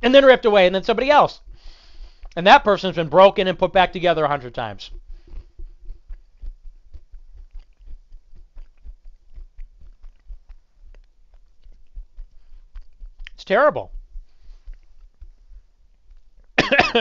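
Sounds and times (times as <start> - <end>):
person chewing peanuts: 1.4 - 2.4, 4.8 - 16.6.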